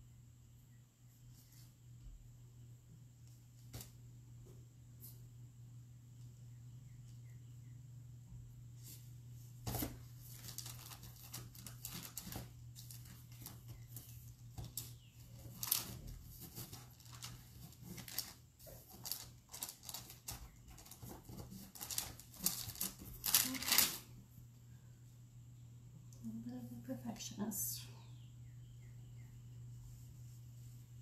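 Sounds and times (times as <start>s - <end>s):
parchment paper crinkling: 9.7s - 24.1s.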